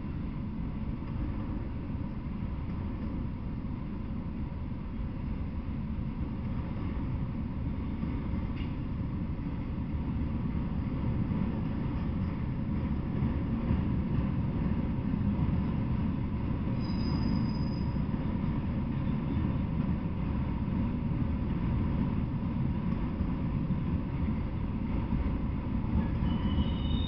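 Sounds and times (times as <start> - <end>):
train wheels rumbling on rail: 0.0 - 27.0
high wheel squeals: 16.8 - 18.1, 26.0 - 27.0.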